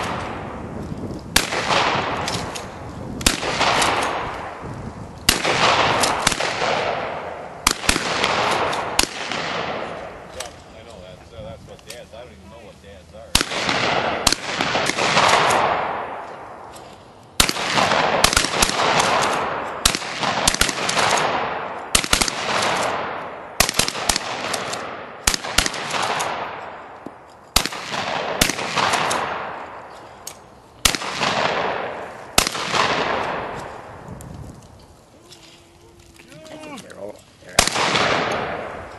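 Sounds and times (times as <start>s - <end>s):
shotgun shots: 0.0s - 0.6s, 1.3s - 4.6s, 5.3s - 10.6s, 13.3s - 16.7s, 17.4s - 29.9s, 30.8s - 33.9s, 37.5s - 38.9s.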